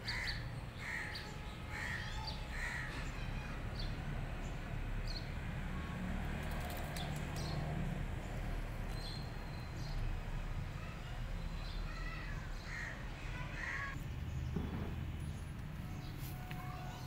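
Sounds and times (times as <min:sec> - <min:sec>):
crows cawing: 0:00.0 - 0:03.1, 0:12.7 - 0:14.0.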